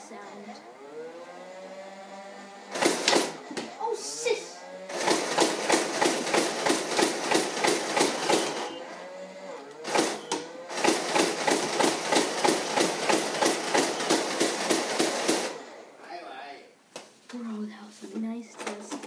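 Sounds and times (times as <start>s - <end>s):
toy blaster firing bursts: 2.7s - 3.4s, 4.8s - 8.8s, 9.8s - 15.6s.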